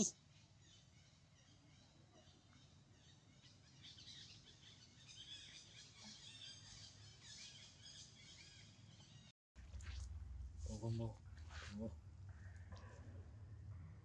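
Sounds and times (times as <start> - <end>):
birds chirping and twittering: 0.0 - 9.3.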